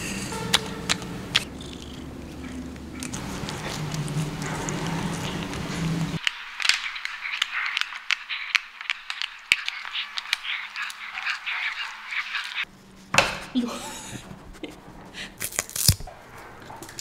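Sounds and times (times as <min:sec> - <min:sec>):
cat chewing and lip-smacking: 0:00.5 - 0:12.6.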